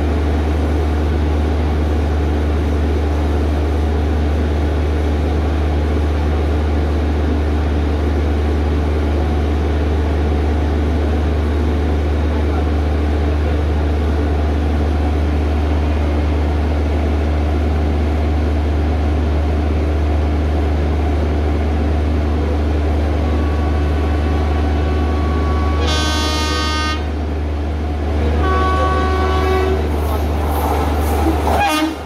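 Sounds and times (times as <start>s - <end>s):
train coaches rumbling on track: 0.0s - 32.0s
locomotive horn blasts: 23.3s - 27.2s, 28.3s - 29.9s, 31.5s - 32.0s.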